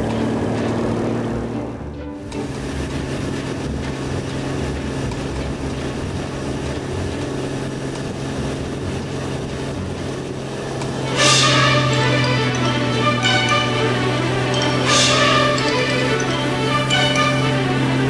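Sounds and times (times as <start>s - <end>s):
boat engine running at speed: 0.0s - 18.0s
rushing water: 0.0s - 18.0s
wind: 0.0s - 18.0s
loud music: 11.0s - 18.0s.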